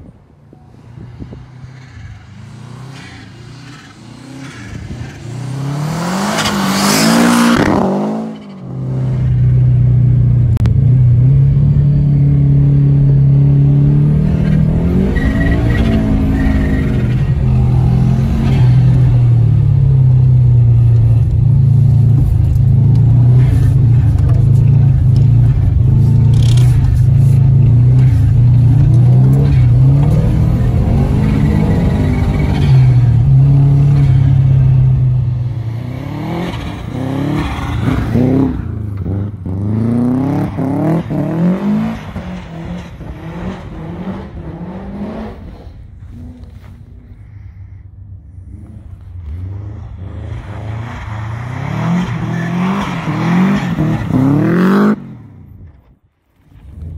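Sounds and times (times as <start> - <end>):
car passing by: 48.4 - 55.4.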